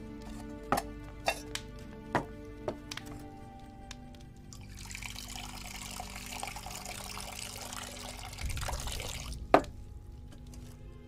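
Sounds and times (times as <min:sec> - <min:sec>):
liquid pouring into a bowl: 0:04.5 - 0:09.5.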